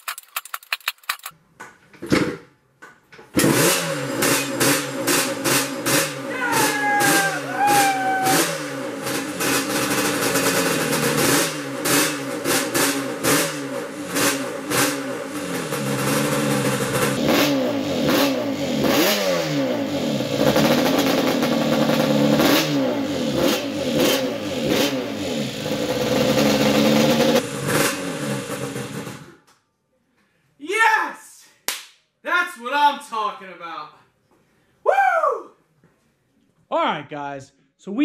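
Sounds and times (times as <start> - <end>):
two-stroke engine revving: 3.4 - 29.3.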